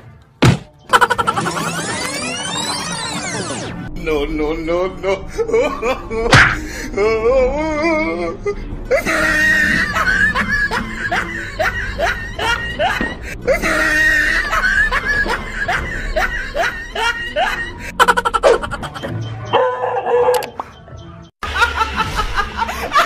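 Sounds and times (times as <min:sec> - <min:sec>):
music: 0:00.0 - 0:23.0
woman laughing: 0:00.9 - 0:01.9, 0:08.9 - 0:19.1, 0:21.4 - 0:23.0.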